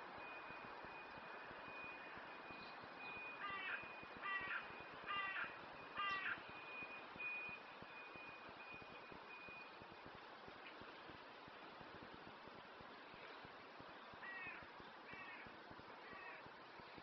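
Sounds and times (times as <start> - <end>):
crow cawing: 3.4 - 6.4, 14.2 - 16.4.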